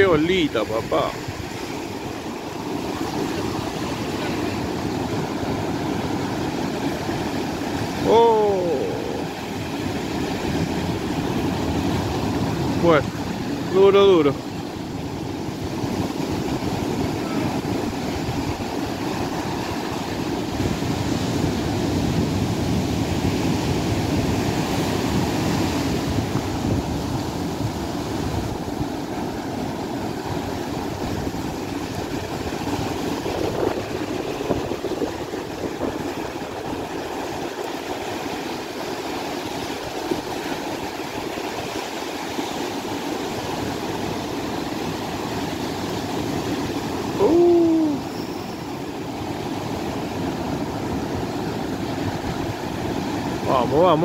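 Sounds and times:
surf washing up a beach: 0:00.0 - 0:54.0
loud hooting call: 0:47.2 - 0:48.4.

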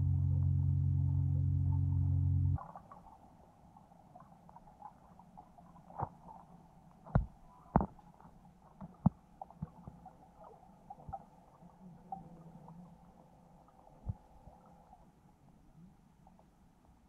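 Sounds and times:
low underwater hum: 0:00.0 - 0:17.0
underwater knocks and thumps: 0:07.0 - 0:11.2.

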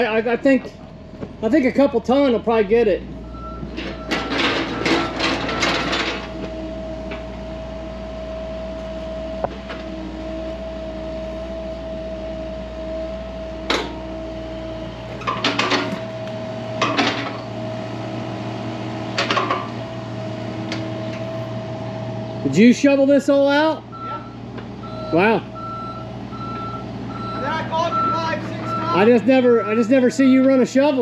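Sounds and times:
deep rumble: 0:00.0 - 0:22.5
machinery whine: 0:00.0 - 0:31.0
clatters and knocks: 0:03.6 - 0:06.5, 0:15.2 - 0:16.1.

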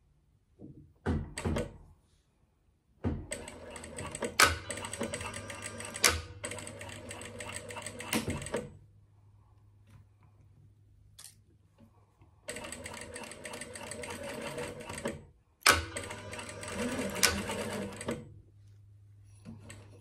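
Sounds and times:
industrial sewing machine stitching: 0:03.3 - 0:08.7, 0:12.5 - 0:18.3.

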